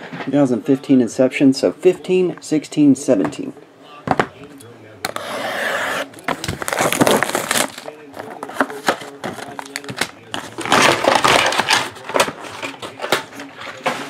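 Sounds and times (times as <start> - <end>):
shrink-wrap crinkling: 6.2 - 13.1.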